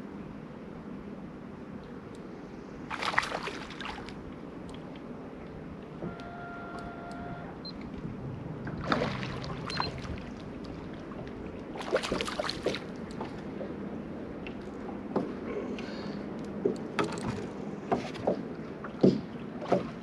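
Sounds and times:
waves lapping against boat hull: 2.8s - 20.0s
water splashing: 2.9s - 5.1s, 8.3s - 13.7s.

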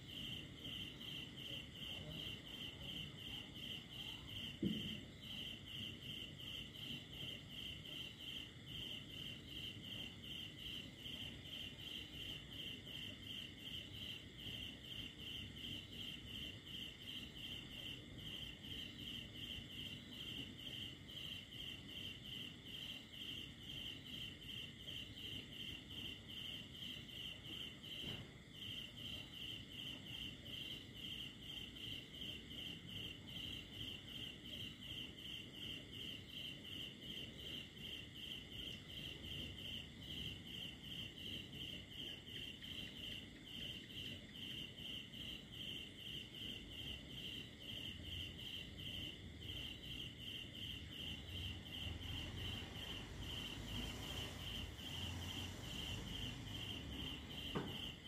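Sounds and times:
cricket chirping: 0.0s - 58.0s.

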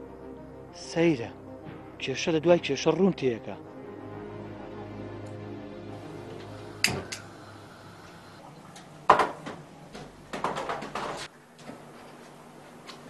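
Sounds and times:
dishes and utensils clattering: 9.1s - 11.3s.

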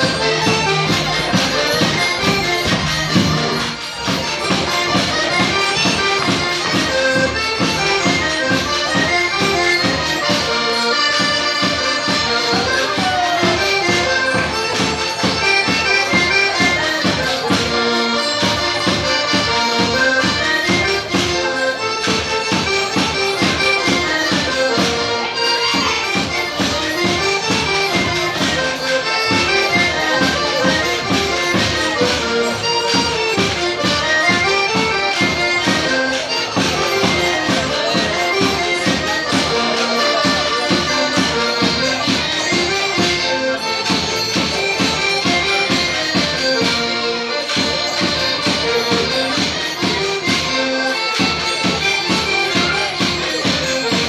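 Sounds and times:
accordion folk dance tune: 0.0s - 54.0s
steady beat: 0.0s - 54.0s.

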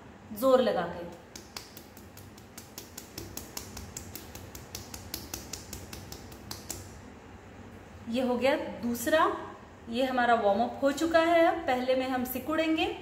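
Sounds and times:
fingertips tapping on skin: 1.1s - 7.0s.

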